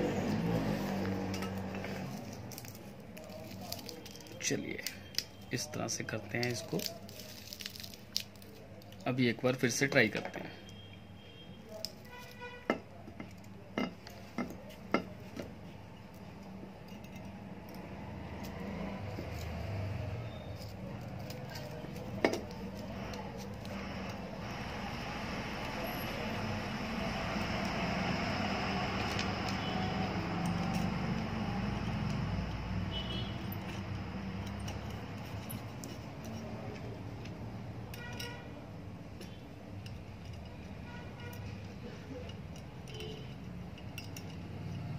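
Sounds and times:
small metal clicks: 0:39.2 - 0:44.9.

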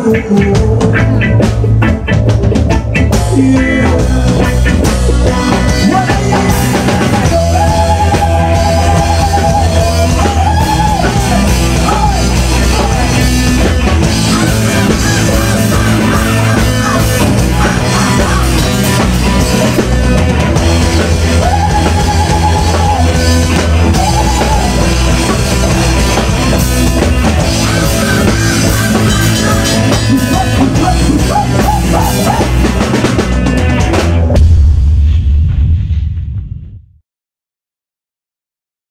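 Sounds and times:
electric guitar: 0:00.0 - 0:35.0
drum kit: 0:00.0 - 0:36.9
bass guitar: 0:00.0 - 0:37.0
loud hit: 0:34.2 - 0:37.0.

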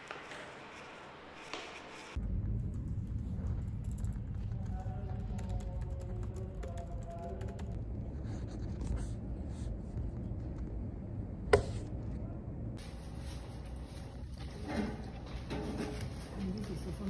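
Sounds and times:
low room rumble: 0:02.2 - 0:17.0
laptop keyboard typing: 0:03.8 - 0:07.8.

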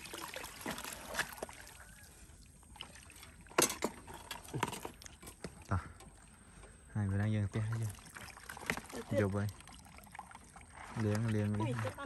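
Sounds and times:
sharp splashes: 0:00.0 - 0:03.6, 0:07.5 - 0:12.0
water pouring from bucket: 0:00.0 - 0:12.0.

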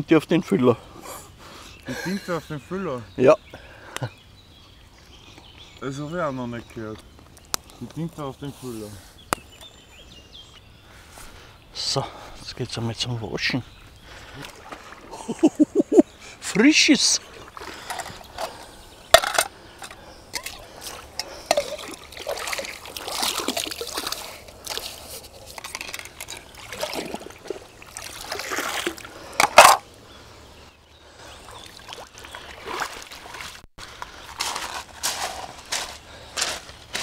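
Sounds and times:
hands splashing river water: 0:14.2 - 0:15.6, 0:20.3 - 0:29.8, 0:31.4 - 0:35.9
water trickling: 0:19.2 - 0:29.4, 0:31.2 - 0:34.2.

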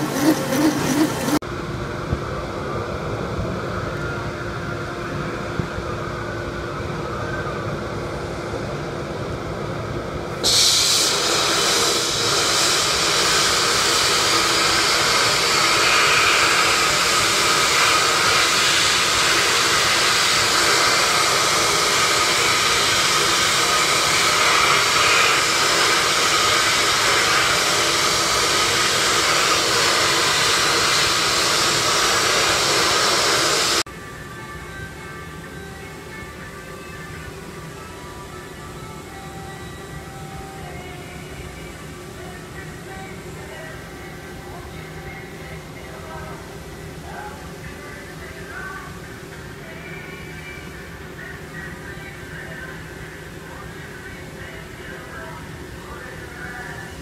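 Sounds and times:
steady rushing: 0:00.0 - 0:01.4
faint hum: 0:12.0 - 0:57.0.

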